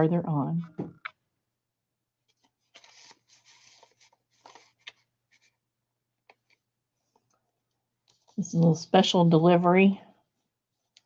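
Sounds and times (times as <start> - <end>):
paper rustling: 2.2 - 5.6.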